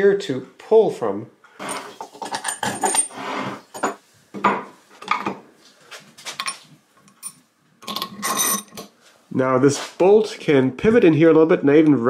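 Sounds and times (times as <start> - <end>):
metal hardware clinking on wood: 6.4 - 8.9.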